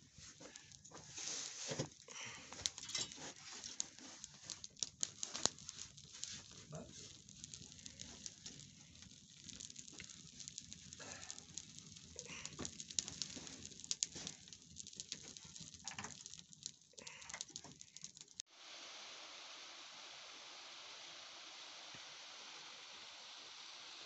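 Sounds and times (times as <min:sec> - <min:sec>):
twig fire crackling and popping: 0:00.0 - 0:18.5.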